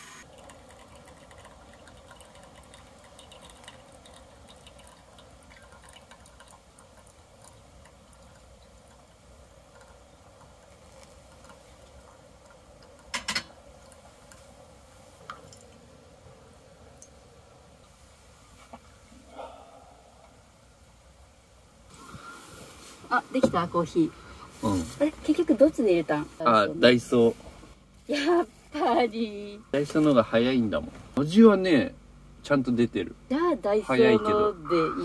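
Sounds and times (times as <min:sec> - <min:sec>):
water trickling onto coffee grounds: 0:00.2 - 0:18.9, 0:21.9 - 0:27.4.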